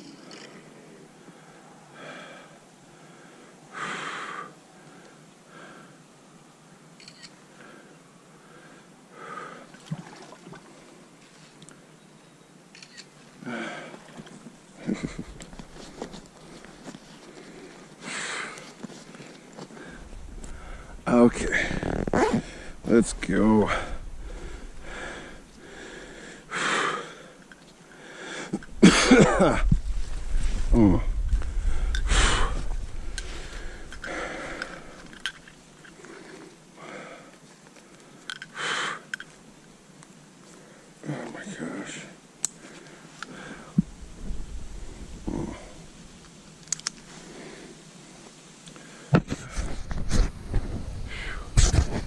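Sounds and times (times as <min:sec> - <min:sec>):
person breathing hard: 0:01.2 - 0:06.0, 0:17.2 - 0:18.8, 0:19.6 - 0:21.0, 0:21.7 - 0:22.9, 0:23.7 - 0:28.7, 0:31.5 - 0:35.2, 0:35.9 - 0:37.4, 0:42.7 - 0:43.8.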